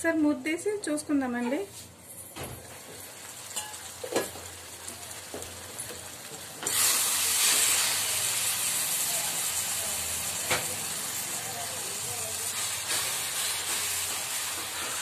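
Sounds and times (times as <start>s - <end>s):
curry simmering and sizzling: 2.6s - 15.0s
spatula stirring in pan: 12.4s - 15.0s.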